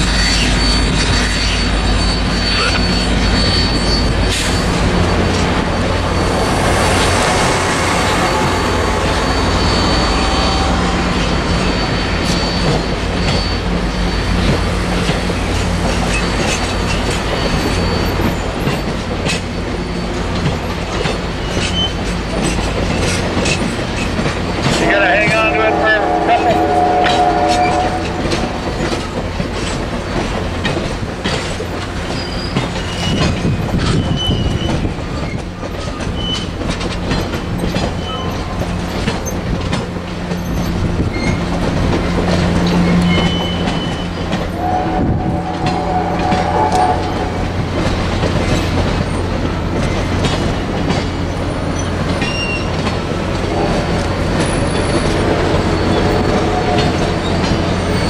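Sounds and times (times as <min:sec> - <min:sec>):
high-pitched wheel squeals: 0:00.0 - 0:20.4, 0:21.4 - 0:29.2, 0:32.0 - 0:36.6, 0:37.6 - 0:39.4, 0:40.3 - 0:49.2, 0:51.3 - 0:52.9, 0:53.5 - 0:58.0
train cars rolling past: 0:00.0 - 0:58.0
wheels clicking over rail joints: 0:14.4 - 0:24.9, 0:26.6 - 0:58.0.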